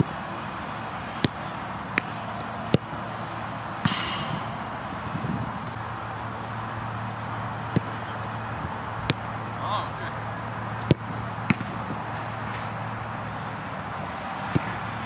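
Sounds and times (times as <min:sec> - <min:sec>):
low outdoor hum: 0:00.0 - 0:15.0
football kicks and bounces: 0:01.1 - 0:03.0, 0:07.7 - 0:08.1, 0:09.0 - 0:09.3, 0:10.8 - 0:11.8, 0:14.5 - 0:14.8.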